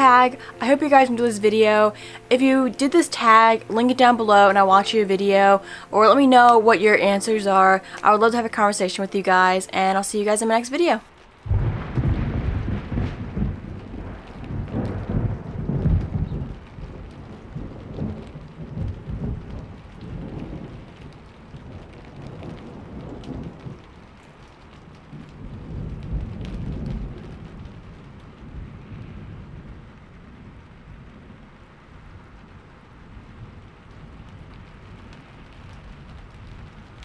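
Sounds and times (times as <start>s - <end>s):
steady rain: 0.0s - 37.0s
rolling thunder: 11.4s - 37.0s.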